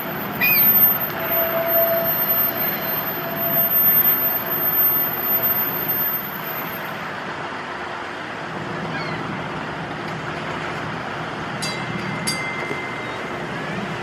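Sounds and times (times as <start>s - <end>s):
faint tone: 0.0s - 7.0s
streetcar rolling on track: 0.0s - 14.0s.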